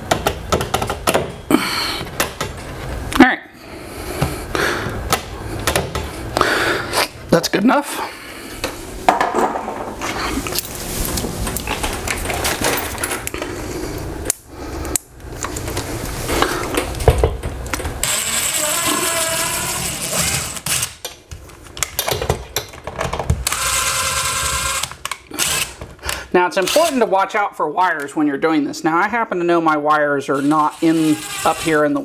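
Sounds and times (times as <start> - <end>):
cordless drill drilling into wall: 18.0 - 21.0, 23.4 - 25.8, 30.4 - 31.8.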